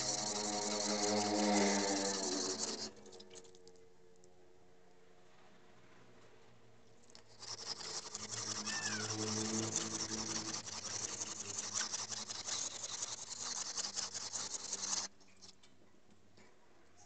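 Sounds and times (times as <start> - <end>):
blade scraping on sharpening stone: 0.0 - 3.0, 7.2 - 15.1.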